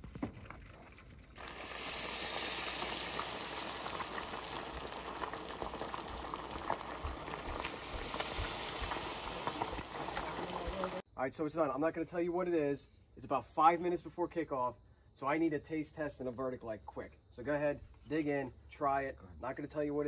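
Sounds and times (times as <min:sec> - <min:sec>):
fish deep-frying in oil: 0:01.0 - 0:11.0.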